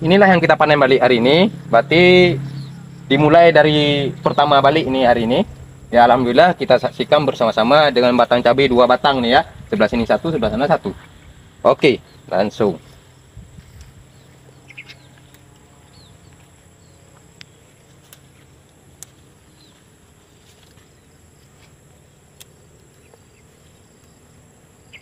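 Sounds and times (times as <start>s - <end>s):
high insect drone: 0.0s - 25.0s
bird chirps: 2.2s - 4.8s, 10.3s - 18.6s, 19.2s - 19.9s, 22.9s - 24.2s, 24.8s - 25.0s
chili pods snapping off: 17.2s - 19.3s.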